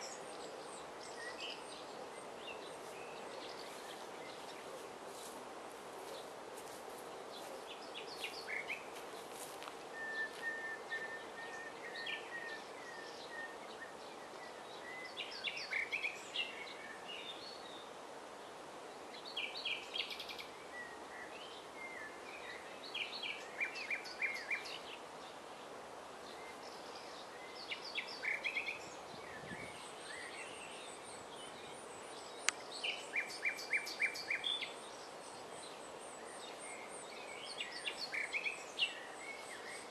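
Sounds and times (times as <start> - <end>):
nightingale singing: 6.0 - 17.7, 19.2 - 25.0, 26.3 - 39.9.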